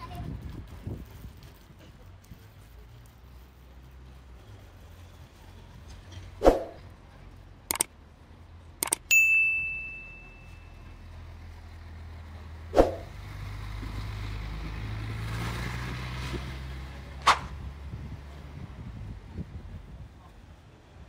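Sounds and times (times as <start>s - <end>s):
bus engine rumble: 0.0s - 21.0s
bell-like ding: 9.1s - 11.0s.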